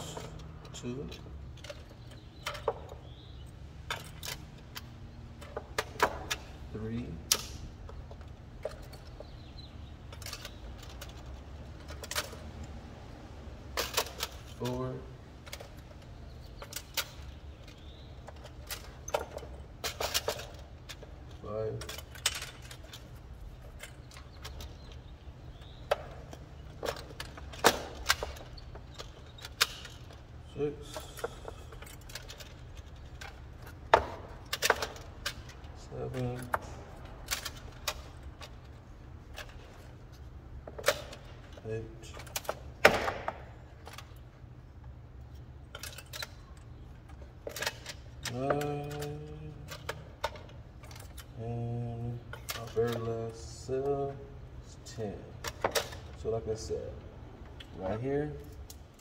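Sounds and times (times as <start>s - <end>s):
battery cells clacking on wood: 15.3s - 30.4s.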